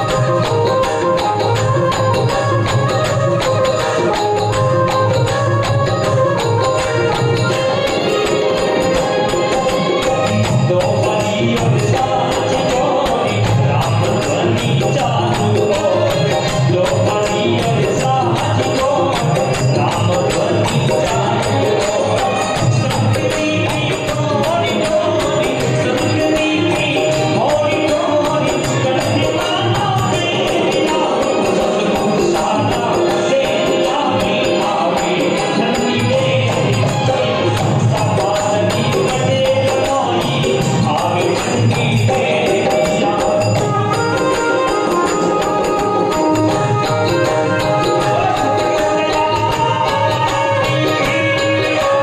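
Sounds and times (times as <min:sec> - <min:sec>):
devotional folk singing: 0:00.0 - 0:52.0
steady percussion: 0:00.0 - 0:52.0.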